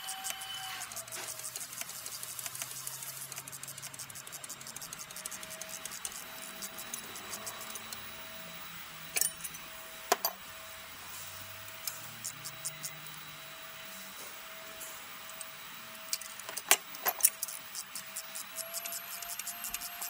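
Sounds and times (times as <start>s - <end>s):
ratchet wrench clicking: 0.0s - 8.4s, 16.1s - 20.0s.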